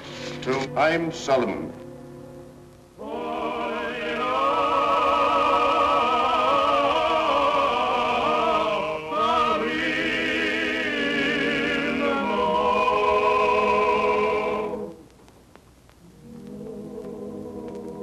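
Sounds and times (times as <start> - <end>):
sustained accompanying tones: 0.0 - 15.1, 16.0 - 18.0
cantor chanting a prayer: 0.3 - 1.7.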